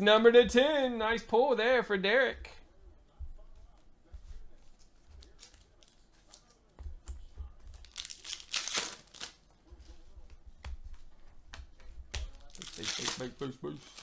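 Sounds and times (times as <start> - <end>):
trading cards and wrappers rustling: 4.7 - 10.0, 12.0 - 14.0.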